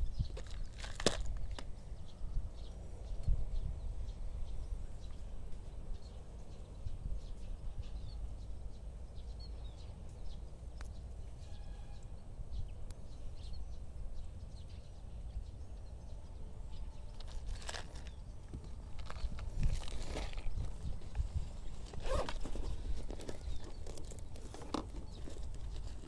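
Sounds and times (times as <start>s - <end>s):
wind on microphone: 0.0s - 8.7s, 16.8s - 26.0s
faint bird chirps: 1.8s - 19.4s.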